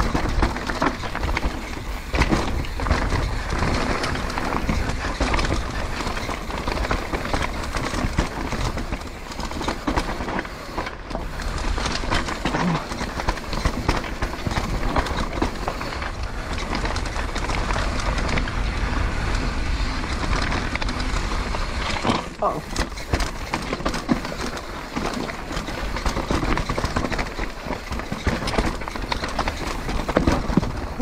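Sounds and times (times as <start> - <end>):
wind rumble on microphone: 0.0 - 10.2
tyres crunching over stones: 0.0 - 18.7, 20.5 - 31.0
bike frame rattling: 0.0 - 31.0.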